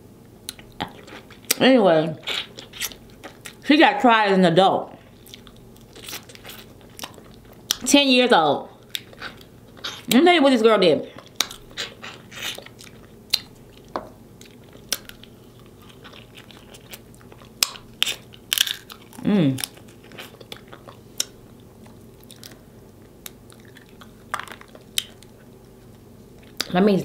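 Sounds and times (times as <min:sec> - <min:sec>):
close chewing: 0:02.2 - 0:03.6, 0:05.0 - 0:07.8, 0:08.8 - 0:10.2, 0:11.2 - 0:26.7
person humming mm: 0:19.2 - 0:19.6.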